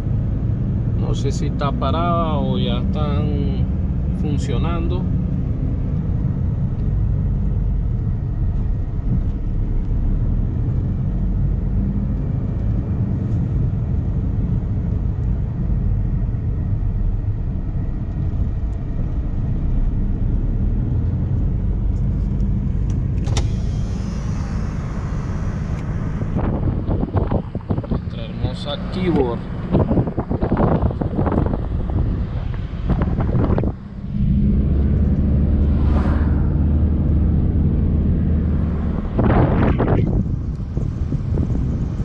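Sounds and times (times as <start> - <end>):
engine and tyres rumbling: 0.0 - 42.0
wind hissing over microphone: 23.3 - 42.0.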